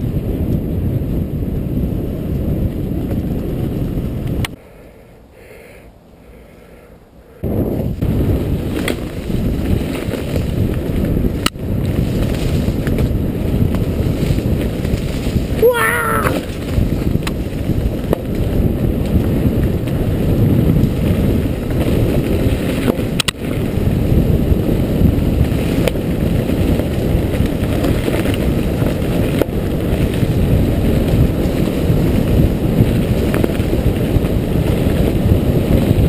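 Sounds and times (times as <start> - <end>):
bike rattling over bumps: 0.0 - 4.5, 7.5 - 36.0
tyres rumbling on dirt: 7.5 - 36.0.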